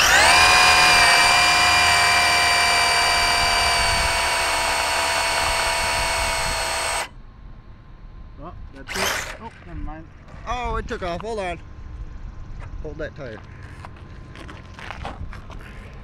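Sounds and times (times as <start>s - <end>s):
electric motor high-pitched whine: 0.0s - 7.1s, 8.8s - 9.5s.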